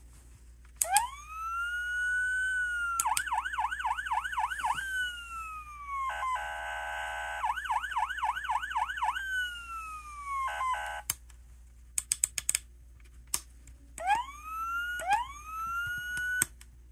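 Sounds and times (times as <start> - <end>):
toy siren sound effects: 0.8 - 11.1, 14.0 - 16.5
sharp clicks: 3.0 - 3.5, 12.0 - 12.7.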